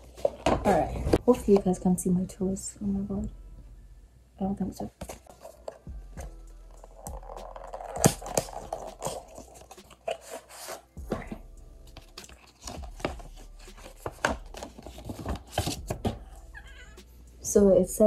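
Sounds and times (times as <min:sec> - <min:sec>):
packaging tearing and crinkling: 0:07.0 - 0:10.7.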